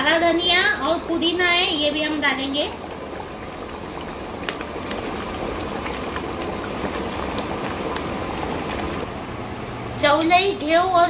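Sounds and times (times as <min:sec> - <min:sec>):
gravy bubbling in a pot: 0:00.1 - 0:09.2.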